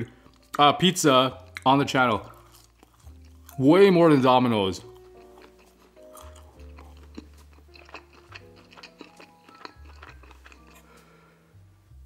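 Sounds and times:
quiet background music: 0:00.0 - 0:12.0
chewing with mouth smacks: 0:01.5 - 0:03.6, 0:04.8 - 0:11.0.

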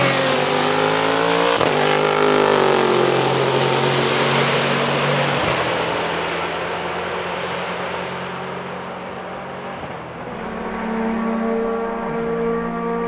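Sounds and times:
race car engine approaching: 0:00.0 - 0:13.0
race car engine passing: 0:10.1 - 0:13.0.

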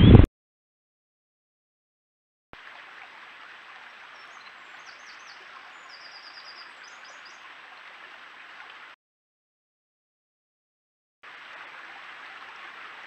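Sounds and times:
water running over stones: 0:02.6 - 0:09.0, 0:11.2 - 0:13.0
bird chirps: 0:04.2 - 0:07.4
bird trill: 0:04.2 - 0:07.4.

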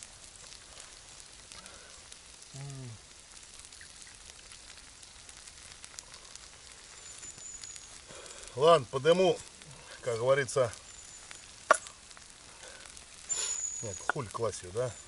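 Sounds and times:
food sizzling in a pan: 0:00.0 - 0:15.0
person humming: 0:02.5 - 0:03.0.

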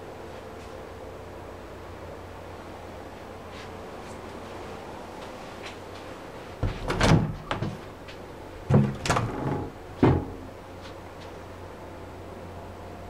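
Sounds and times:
wardrobe doors knocking and clattering: 0:06.6 - 0:07.9, 0:08.6 - 0:10.5.

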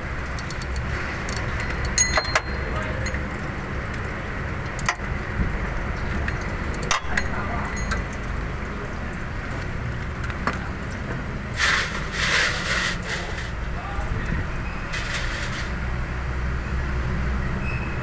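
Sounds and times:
rough scraping: 0:11.5 - 0:13.6, 0:14.9 - 0:15.8.

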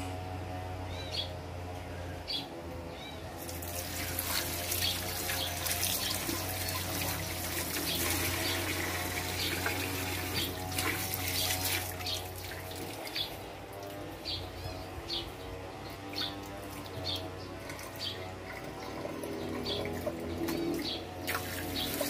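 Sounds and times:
tap water running into sink: 0:21.3 - 0:22.0.

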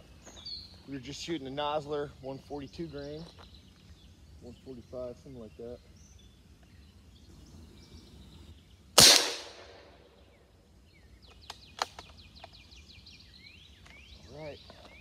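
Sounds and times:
air rifle shot: 0:09.0 - 0:10.0.

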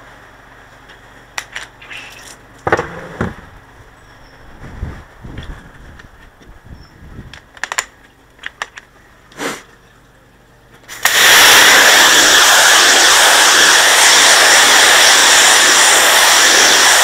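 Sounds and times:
pressure washer spraying slabs: 0:10.9 - 0:17.0.

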